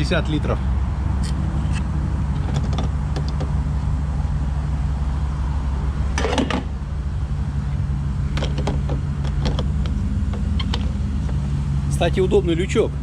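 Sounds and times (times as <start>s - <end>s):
fuel nozzle clatter: 8.3s - 11.4s.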